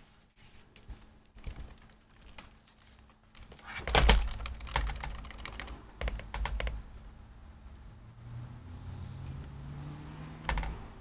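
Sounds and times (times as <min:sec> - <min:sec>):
keyboard keys tapping rapidly: 0:01.4 - 0:06.9, 0:10.4 - 0:11.0.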